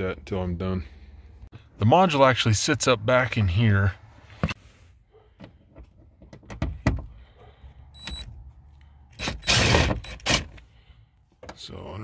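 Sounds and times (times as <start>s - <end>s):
impact driver burst: 9.2s - 10.6s.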